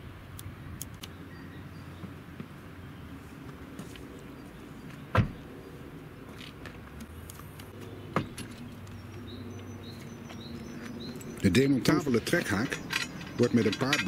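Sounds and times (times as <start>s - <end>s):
birds chirping: 0.4s - 14.0s
car door slamming: 5.1s - 5.4s
car hatch thump: 5.1s - 5.4s.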